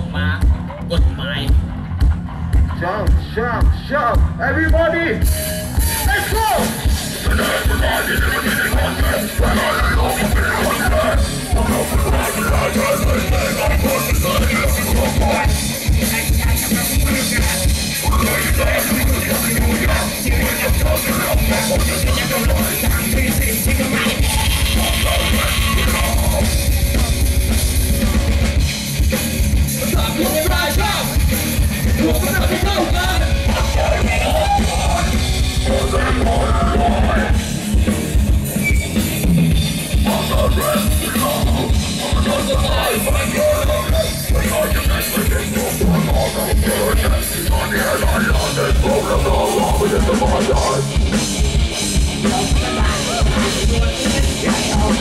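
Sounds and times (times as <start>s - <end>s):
bass guitar: 0.0s - 55.0s
distorted electric guitar: 0.0s - 55.0s
drum kit: 0.0s - 55.0s
shouted vocals: 5.4s - 27.2s, 32.0s - 37.4s, 52.2s - 55.0s.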